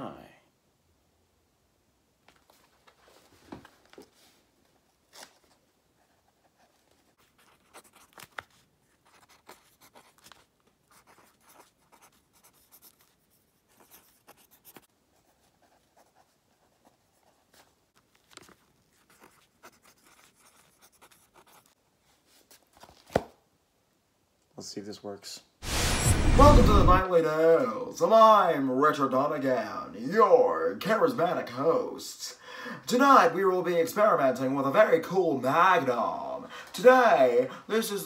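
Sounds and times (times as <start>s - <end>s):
pen scratching on paper: 6.0s - 17.4s, 18.9s - 21.8s.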